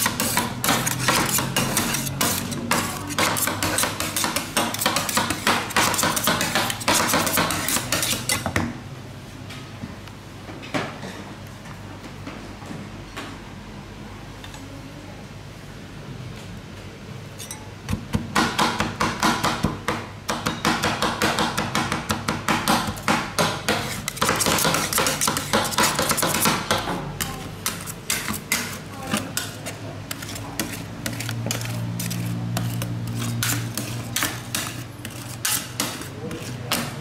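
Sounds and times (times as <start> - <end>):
spatula scraping strokes: 0.0 - 8.4, 23.7 - 26.6, 27.2 - 37.0.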